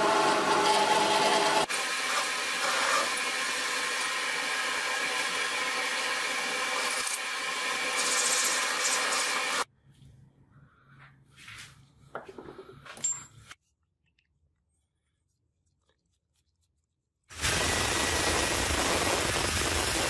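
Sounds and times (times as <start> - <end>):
power tool scraping: 0.0 - 9.7.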